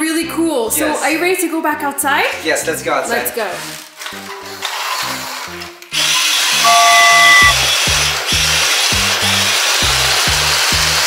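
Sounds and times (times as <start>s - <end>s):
held high tone: 6.6s - 7.6s.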